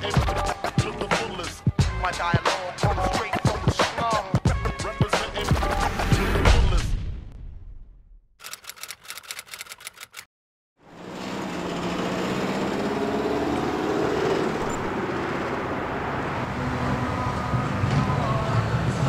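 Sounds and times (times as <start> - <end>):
typewriter-style clicks: 8.4 - 10.3
cars driving past: 10.8 - 19.0.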